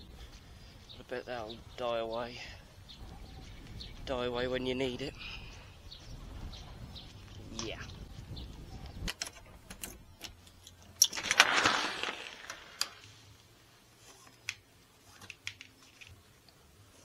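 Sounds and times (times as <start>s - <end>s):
wind buffeting microphone: 2.5s - 10.1s.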